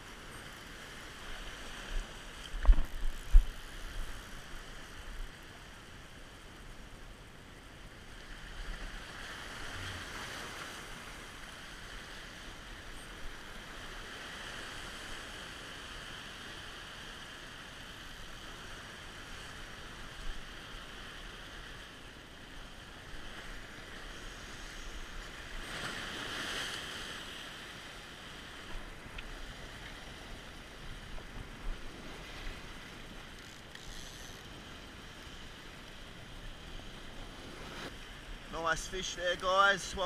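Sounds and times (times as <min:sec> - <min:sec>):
waves washing over rocks: 0:23.0 - 0:33.2, 0:35.5 - 0:40.0.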